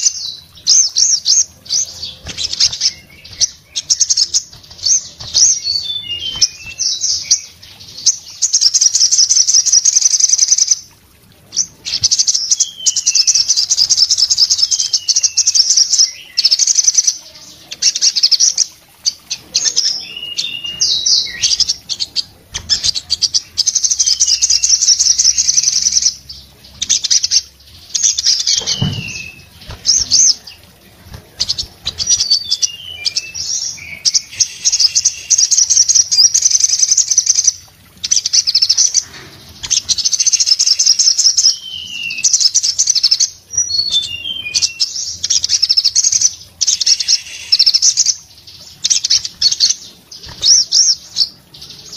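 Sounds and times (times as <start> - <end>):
falling whistled bird notes: 28.4 - 30.4, 46.7 - 48.2.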